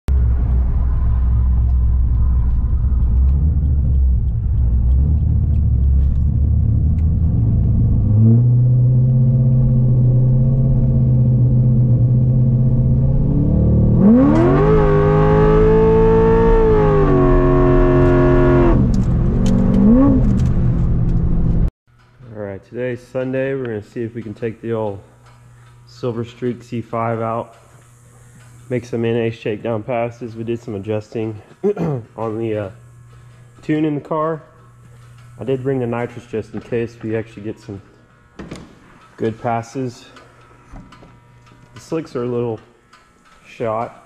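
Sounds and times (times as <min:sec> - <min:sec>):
car engine drone from inside: 0:00.1 - 0:21.7.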